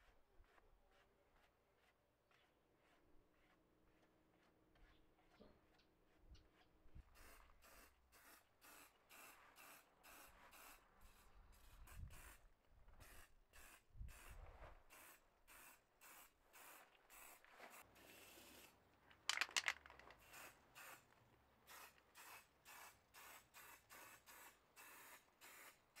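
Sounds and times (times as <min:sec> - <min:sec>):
spray paint can hissing: 0:14.9 - 0:18.7, 0:20.2 - 0:21.0, 0:21.7 - 0:25.8
clatter: 0:19.3 - 0:20.2.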